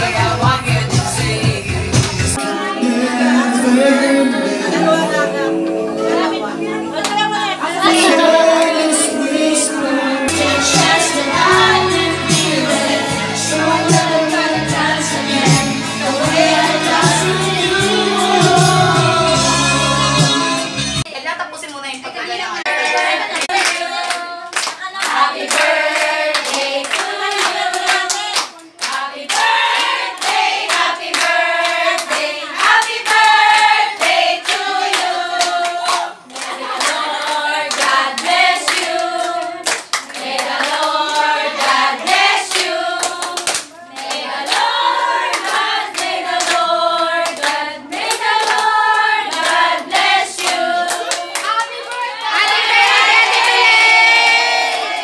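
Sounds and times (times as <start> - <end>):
women singing together: 2.2 - 21.0, 22.6 - 55.0
people clapping: 22.8 - 55.0.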